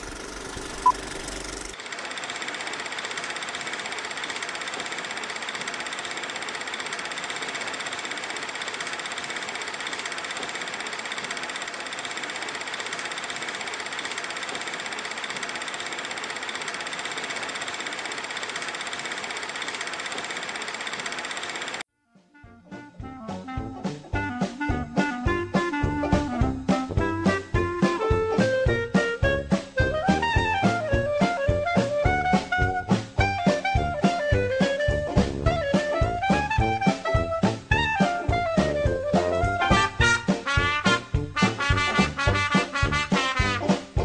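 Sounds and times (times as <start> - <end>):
film projector clattering: 0.0 - 21.8.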